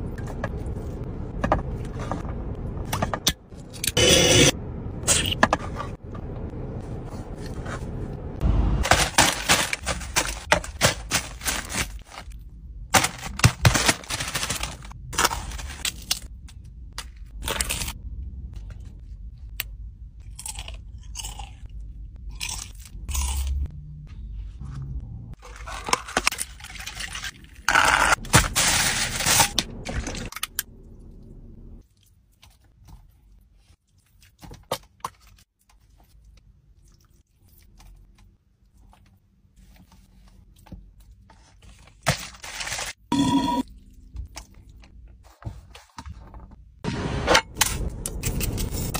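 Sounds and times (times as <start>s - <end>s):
crunchy chewing: 20.3s - 23.6s.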